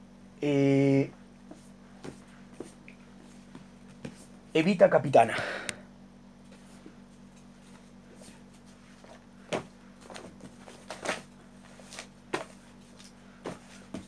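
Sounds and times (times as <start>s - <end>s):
steady low hum: 0.0s - 14.0s
rustling handling noises: 6.5s - 14.0s.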